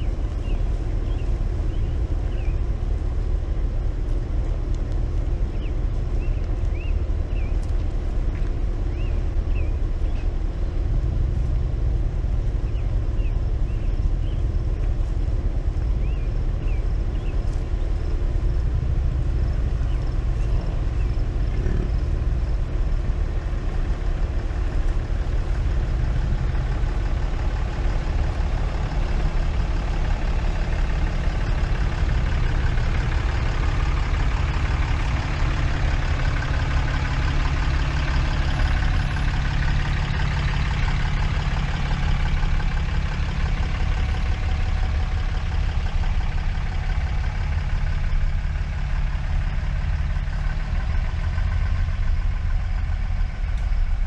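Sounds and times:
bird chirping: 0.0s - 2.8s, 5.3s - 7.7s, 8.3s - 10.8s, 12.5s - 14.6s, 15.9s - 18.5s, 19.3s - 41.0s
truck pulling up: 0.0s - 54.0s
vehicle engine idling: 0.0s - 54.0s.

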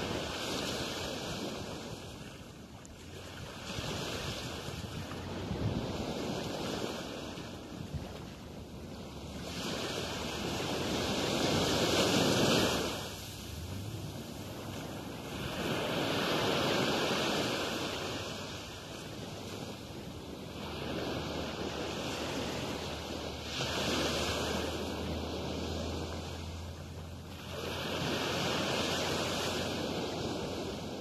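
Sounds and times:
sea waves breaking on beach: 0.0s - 31.0s.

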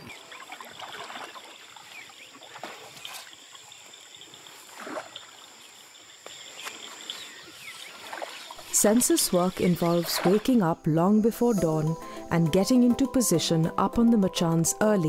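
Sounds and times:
water swishing and splashing: 0.0s - 10.9s.

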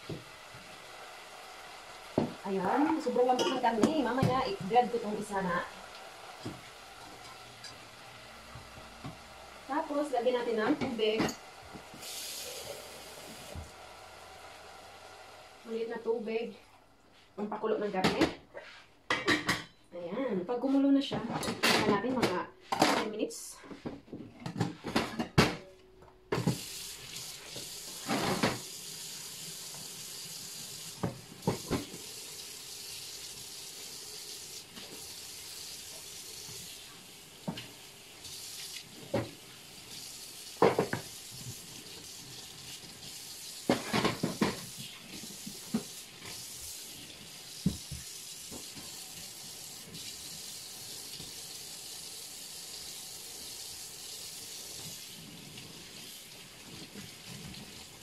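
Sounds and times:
knocks and clatters of kitchenware: 19.1s - 19.8s, 21.1s - 23.1s, 23.7s - 26.6s, 40.6s - 41.1s, 43.7s - 44.7s.

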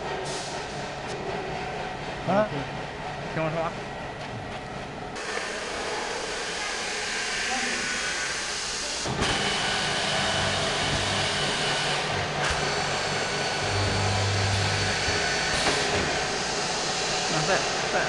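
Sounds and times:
drilling machine motors whirring: 5.2s - 17.6s.

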